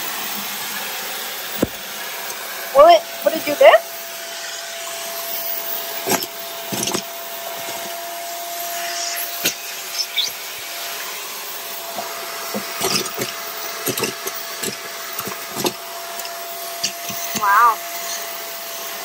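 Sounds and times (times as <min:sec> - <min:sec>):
vacuum cleaner whine: 0:00.0 - 0:19.0
hard pieces clicking and rattling: 0:12.5 - 0:17.5.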